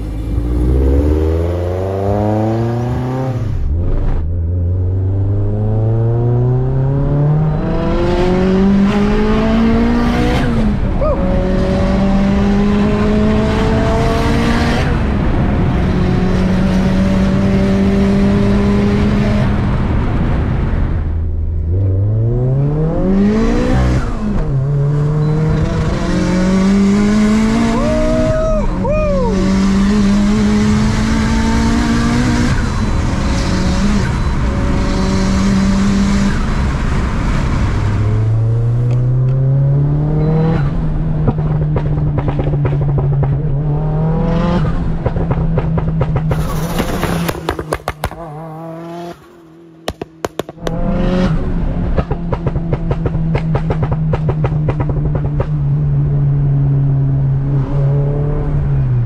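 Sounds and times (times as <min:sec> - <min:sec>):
car engine revving hard: 0:00.0 - 0:04.0, 0:05.6 - 0:19.8, 0:21.7 - 0:28.4, 0:29.2 - 0:41.4
exhaust pops and cracks: 0:45.0 - 0:48.3, 0:49.9 - 0:50.8.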